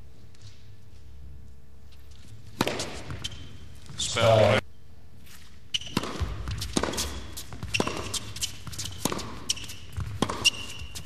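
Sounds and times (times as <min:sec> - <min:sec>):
tennis ball hit by rackets: 0:02.5 - 0:03.3, 0:05.8 - 0:11.0.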